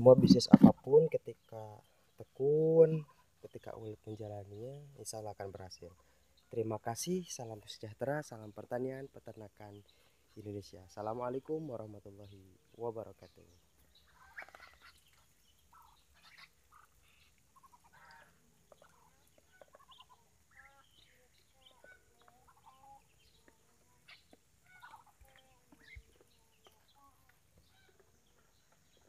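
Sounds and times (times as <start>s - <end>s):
ducks calling softly: 0.0s - 0.9s, 13.7s - 29.0s.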